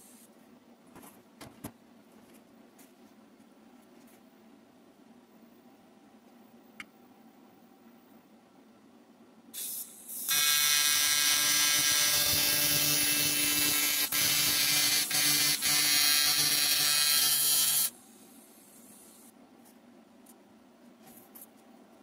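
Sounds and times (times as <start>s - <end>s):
welding arc buzzing: 9.6s - 18.0s.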